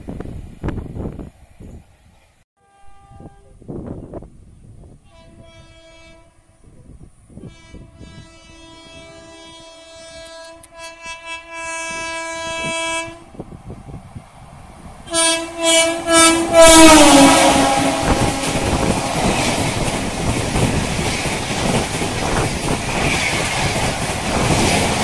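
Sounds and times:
rush of passing train: 0:00.0 - 0:25.0
train air horn blasts: 0:02.6 - 0:03.8, 0:05.0 - 0:06.8, 0:07.4 - 0:13.4, 0:15.1 - 0:20.2.

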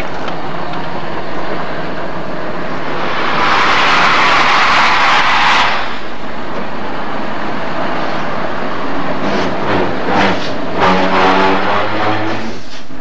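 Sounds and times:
low rumble of train: 0:00.0 - 0:13.0
steam hissing: 0:02.6 - 0:06.4.

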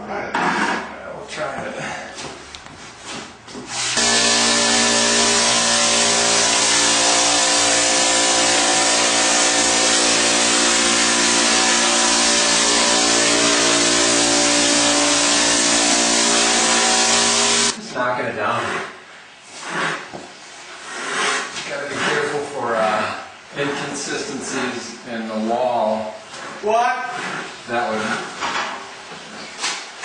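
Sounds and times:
texture spray gun hissing: 0:15.2 - 0:17.8.

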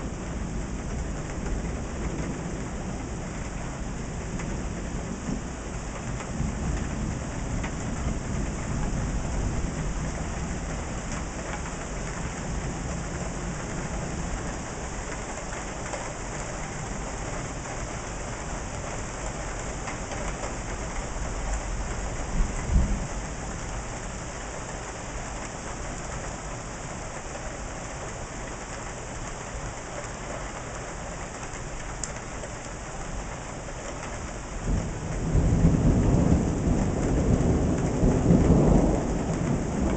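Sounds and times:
steady rain: 0:00.0 - 0:39.9
thunder rumbling: 0:18.9 - 0:26.4, 0:34.1 - 0:39.9.

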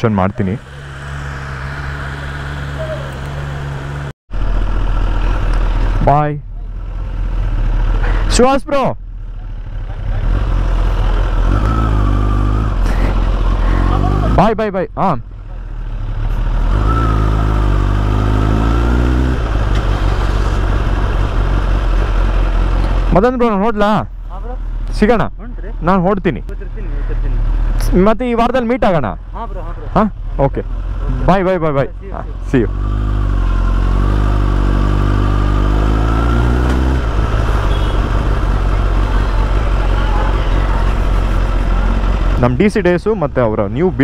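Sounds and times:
motorcycle engine running: 0:09.0 - 0:14.5, 0:29.2 - 0:44.0
motorcycle engine pulling away: 0:32.5 - 0:42.6.

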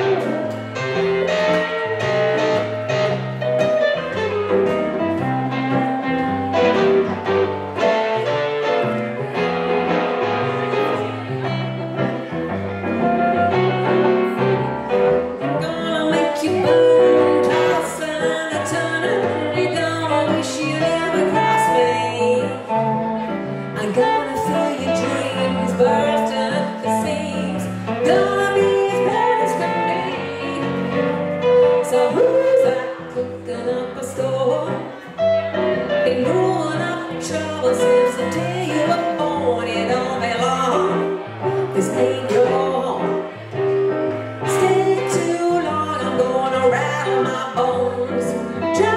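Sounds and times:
electric guitar: 0:00.0 - 0:48.9
electric keyboard: 0:00.0 - 0:48.9
person singing: 0:13.5 - 0:35.4, 0:36.0 - 0:43.4.

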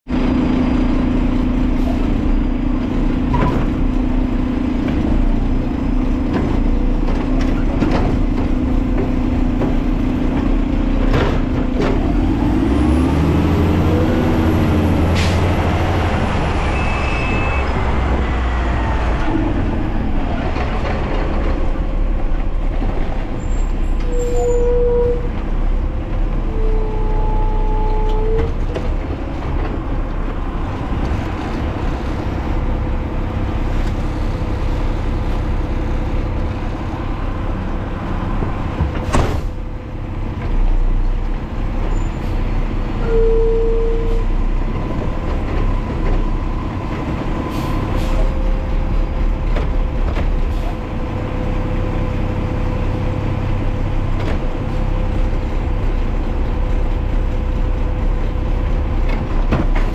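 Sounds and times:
garbage truck engine running: 0:00.1 - 0:24.6, 0:28.3 - 0:43.0, 0:44.1 - 0:59.9.

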